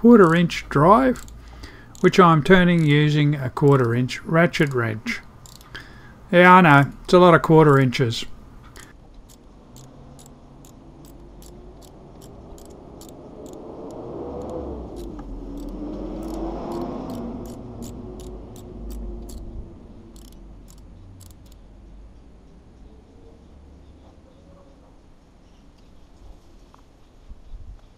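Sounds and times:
ratchet wrench clicking: 0:00.1 - 0:06.0, 0:06.8 - 0:08.0, 0:08.7 - 0:21.6
low wavering hum: 0:09.5 - 0:22.3.

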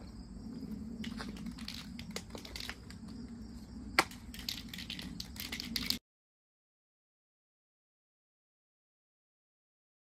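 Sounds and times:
spray cans clicking and rattling: 0:01.0 - 0:03.0, 0:04.0 - 0:06.0.

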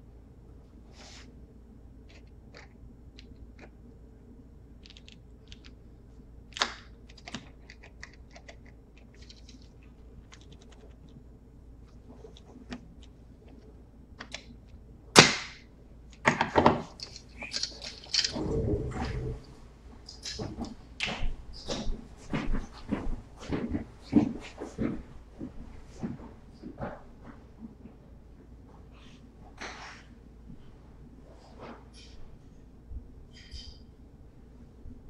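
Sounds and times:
hand tools clicking and scraping: 0:17.0 - 0:19.3.

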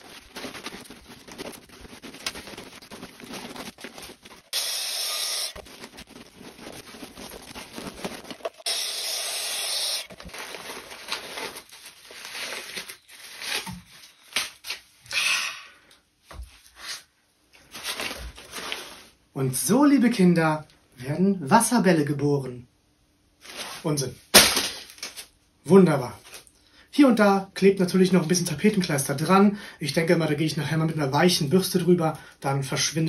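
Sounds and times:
hissing scrapes: 0:00.0 - 0:10.2
plastic rubbing and crinkling: 0:00.0 - 0:14.9, 0:17.6 - 0:19.2.

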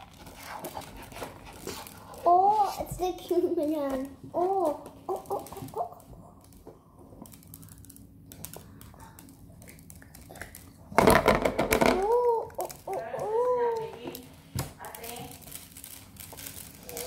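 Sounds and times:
child's voice: 0:02.2 - 0:04.9, 0:12.0 - 0:14.2.

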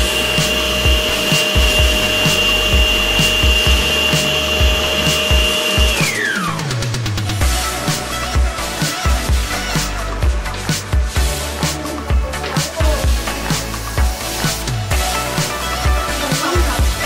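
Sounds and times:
stand mixer motor whining: 0:00.0 - 0:07.2
background music with beat: 0:00.0 - 0:17.0.

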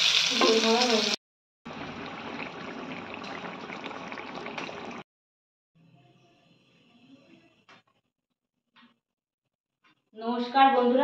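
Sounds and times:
hot oil sizzling in a wok: 0:00.0 - 0:01.2
gravy bubbling and popping: 0:01.7 - 0:05.0.

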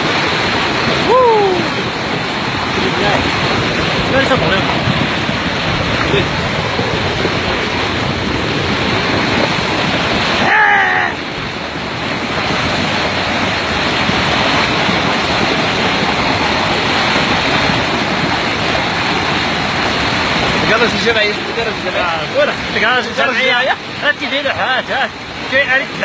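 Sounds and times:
floodwater rushing: 0:00.0 - 0:26.0
person shouting: 0:01.0 - 0:01.9, 0:10.4 - 0:11.3.

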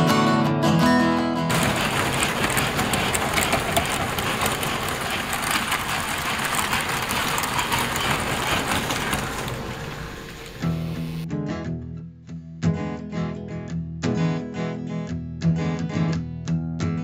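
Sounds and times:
model train on metal track: 0:01.5 - 0:11.2.

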